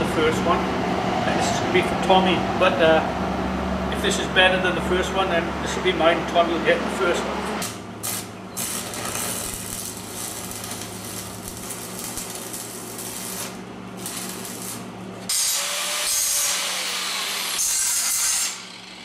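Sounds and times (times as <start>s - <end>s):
low electrical hum: 0.0s - 19.0s
welding arc crackling: 7.6s - 18.6s
angle grinder grinding metal: 7.6s - 19.0s.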